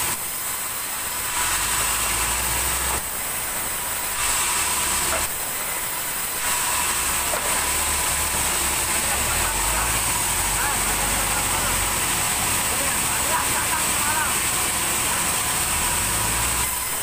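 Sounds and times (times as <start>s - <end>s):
band saw cutting wood: 0.0s - 17.0s.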